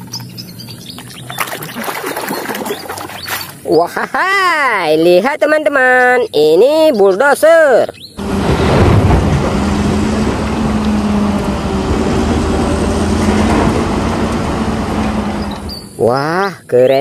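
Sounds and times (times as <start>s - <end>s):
wheel loader diesel engine droning: 8.2s - 16.1s.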